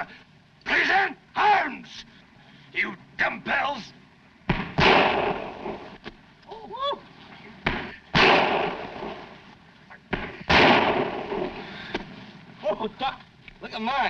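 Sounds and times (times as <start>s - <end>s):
rifle shots echoing: 4.5s - 6.0s, 7.7s - 9.4s, 10.1s - 11.9s.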